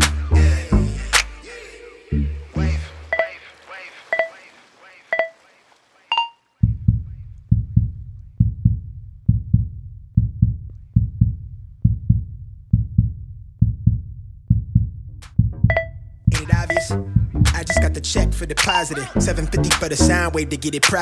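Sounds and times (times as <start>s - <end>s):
heartbeat double thump: 6.6s - 17.8s
short high timer beep: 15.7s - 16.0s, 16.6s - 17.0s.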